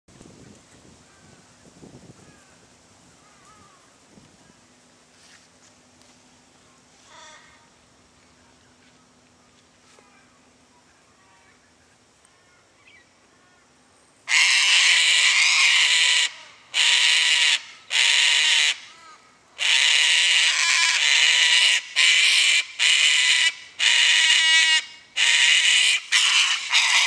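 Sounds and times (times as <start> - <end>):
faint bird chirps: 6.6 - 14.2
cockatoo screeching: 14.3 - 19.0, 19.6 - 27.0.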